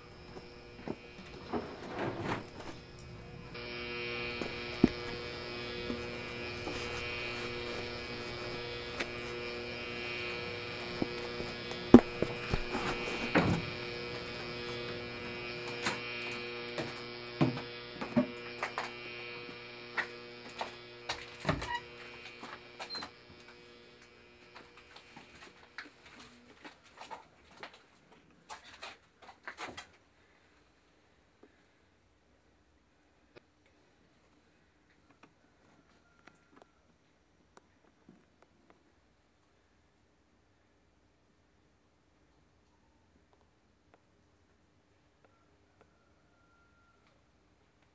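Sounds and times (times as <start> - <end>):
electric buzzing hum: 0.0 - 26.3.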